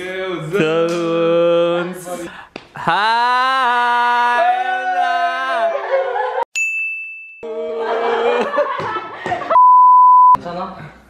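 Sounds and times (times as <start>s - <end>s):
excited voices crying out: 2.8s - 6.4s.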